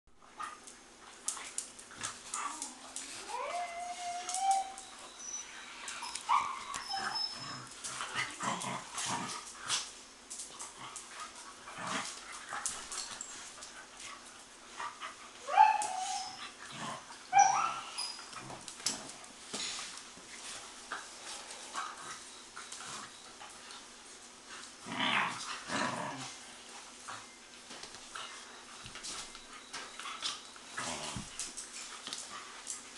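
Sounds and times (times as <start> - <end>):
claws clicking on tile floor: 0.6 - 5.0
puppies whining and yelping: 2.4 - 7.8, 15.4 - 16.6, 17.3 - 18.4.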